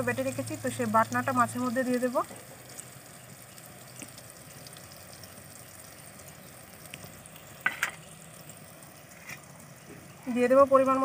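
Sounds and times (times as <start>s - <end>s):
eggplant sizzling in oil: 0.0s - 11.0s.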